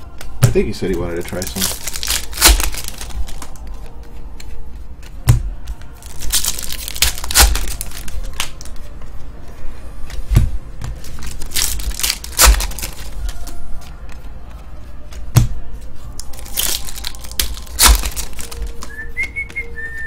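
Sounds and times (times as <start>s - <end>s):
foil wrappers crinkling and tearing: 0.6s - 3.8s, 6.0s - 8.9s, 11.0s - 13.6s, 16.2s - 19.0s.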